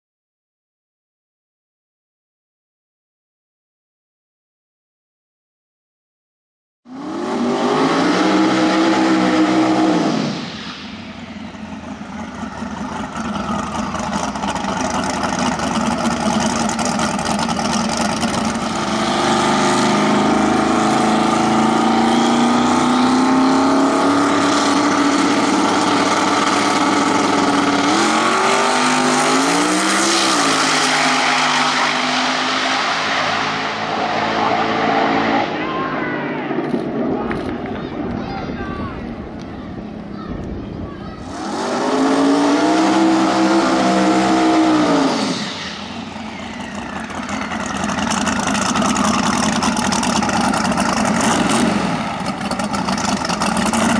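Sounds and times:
race car engine revving: 6.9s - 37.6s, 41.2s - 53.9s.

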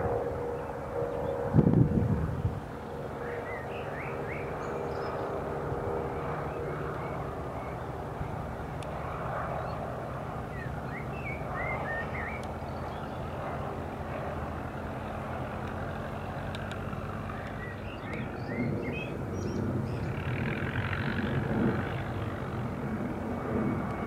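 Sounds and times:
biplane engine flying past: 0.0s - 24.0s
small birds chirping: 9.5s - 13.4s, 16.6s - 20.2s.

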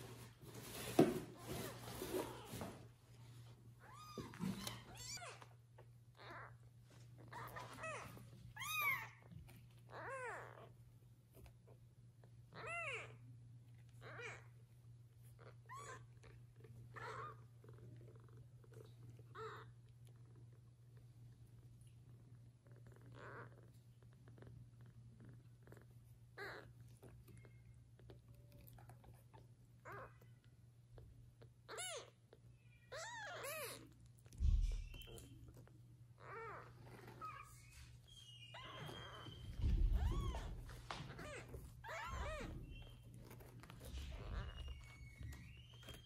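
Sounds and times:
soft rustles and scratches: 0.0s - 12.5s, 33.4s - 46.0s
kittens mewing: 26.3s - 26.8s, 38.3s - 46.0s.

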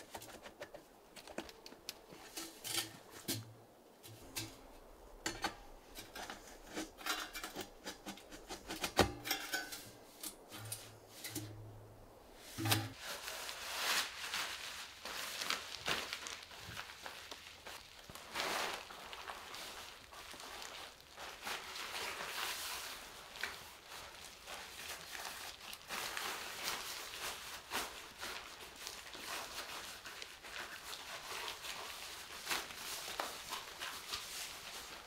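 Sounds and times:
clothing rustling: 9.6s - 35.0s.

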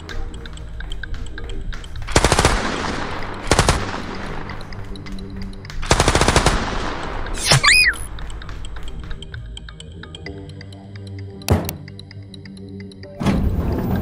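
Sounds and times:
automatic gunfire bursts: 2.1s - 4.5s, 5.8s - 7.2s.

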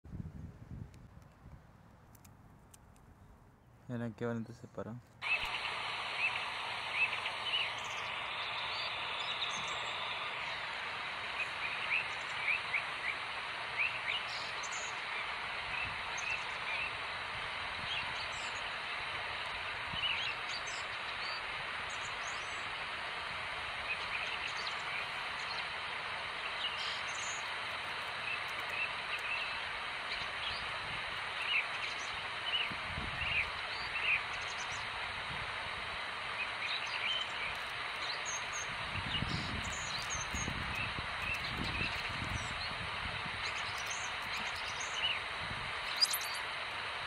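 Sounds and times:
steady background hiss: 0.1s - 47.0s
bird chirps: 5.2s - 17.0s, 19.9s - 22.7s, 26.4s - 30.7s, 36.4s - 42.8s, 43.4s - 45.2s, 45.8s - 46.5s.

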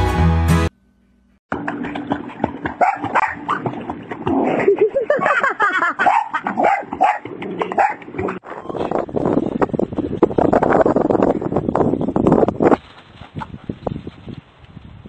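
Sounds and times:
dog splashing in water: 1.5s - 5.4s
dog barking and yipping: 2.7s - 3.7s, 5.2s - 8.4s.

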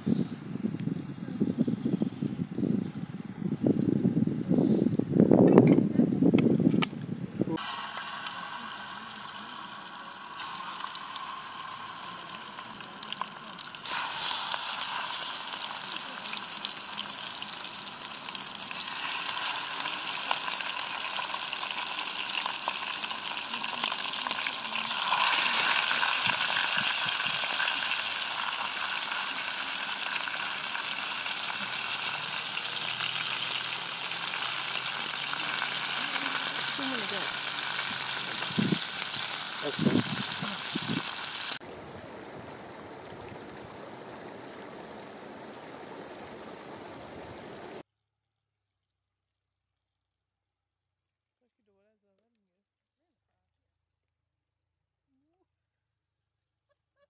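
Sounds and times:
chicken frying in hot oil: 7.5s - 47.8s.

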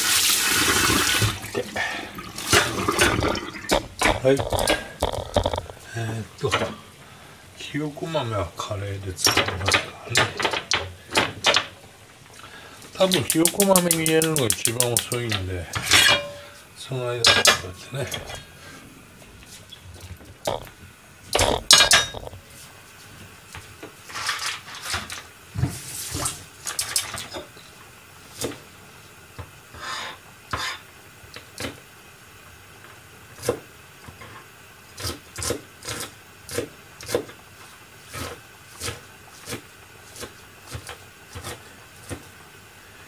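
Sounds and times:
tap water running into sink: 0.0s - 5.8s, 13.0s - 15.1s
utensils and dishes clinking: 9.2s - 11.7s, 13.0s - 16.6s, 17.2s - 18.4s, 21.3s - 22.4s, 26.6s - 27.5s.

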